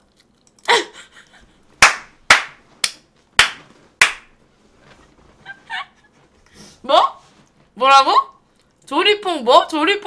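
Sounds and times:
sharp hand claps: 1.8 - 4.4.

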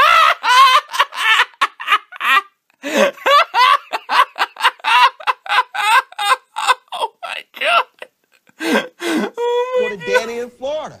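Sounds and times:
high-pitched laughter: 3.2 - 8.1.

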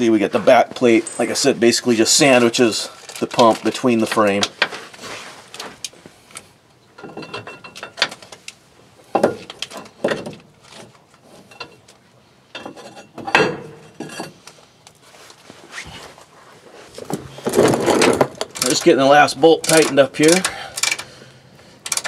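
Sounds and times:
wrench clicking on bolts: 18.4 - 18.9, 19.6 - 21.1.

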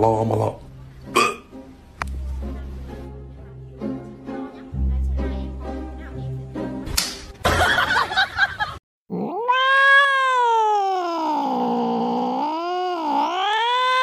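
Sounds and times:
cat yowling: 9.1 - 14.0.

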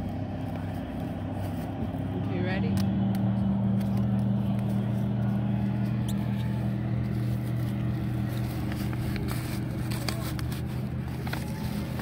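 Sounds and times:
boat motor humming: 0.0 - 12.0
paper crinkling: 5.8 - 12.0.

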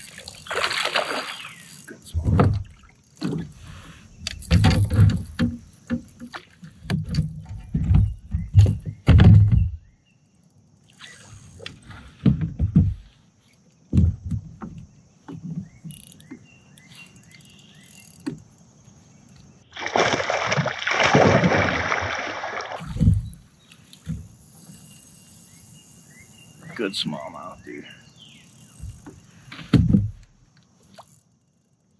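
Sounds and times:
fish splashing at the surface: 0.0 - 1.6, 19.7 - 23.0
knocks and thumps on a kayak: 2.2 - 3.6, 4.3 - 10.0, 11.7 - 13.2, 13.8 - 16.5, 22.8 - 24.4, 28.8 - 30.4.

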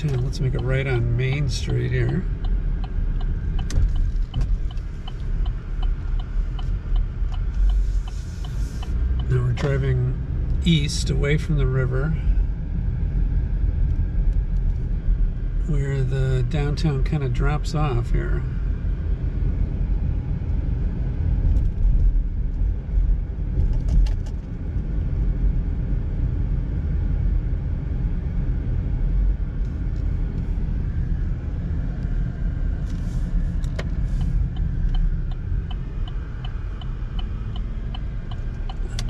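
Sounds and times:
regular light ticking: 0.0 - 9.9, 33.6 - 39.0
car engine and tyre rumble: 0.0 - 39.0.

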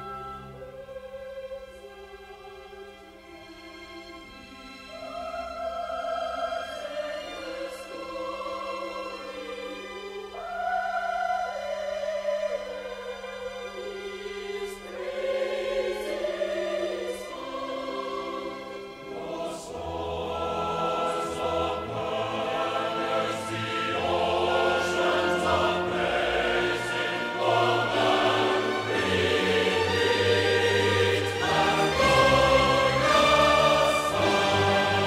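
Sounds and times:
choir singing with orchestra: 0.0 - 35.0.

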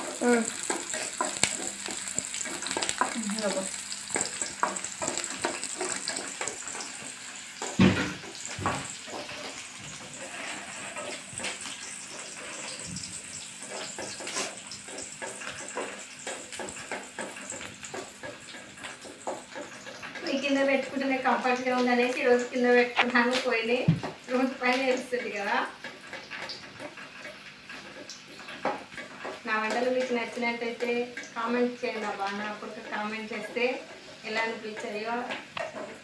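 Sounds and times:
onions sizzling in hot oil: 0.0 - 36.0
wooden spatula scraping pan: 0.1 - 3.4, 4.1 - 23.7.

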